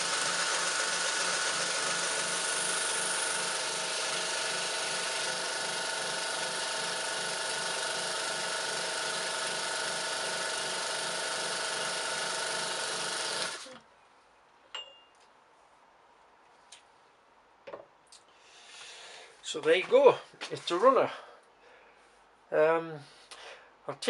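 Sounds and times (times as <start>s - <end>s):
airbrush compressor whining: 0.0s - 13.8s.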